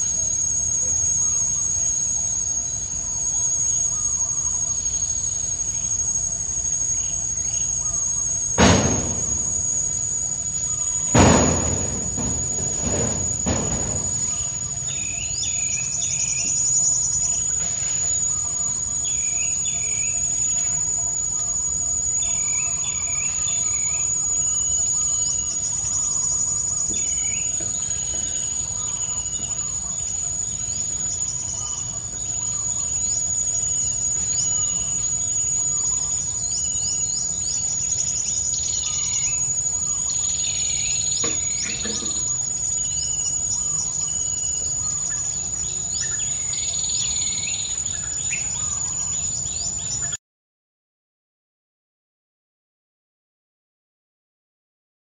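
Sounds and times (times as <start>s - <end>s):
high-pitched insect drone: 0.0s - 50.2s
birds chirping: 8.6s - 20.6s, 22.2s - 50.2s.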